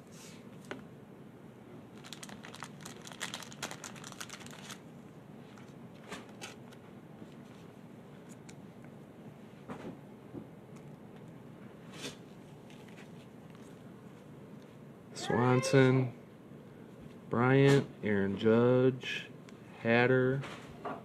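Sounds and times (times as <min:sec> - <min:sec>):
cards crinkling and clicking: 0:02.0 - 0:04.8, 0:05.5 - 0:06.8.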